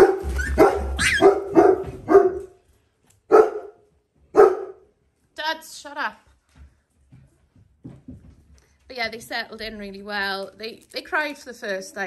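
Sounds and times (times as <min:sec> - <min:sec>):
dog barking: 0:00.0 - 0:02.6, 0:03.3 - 0:04.9.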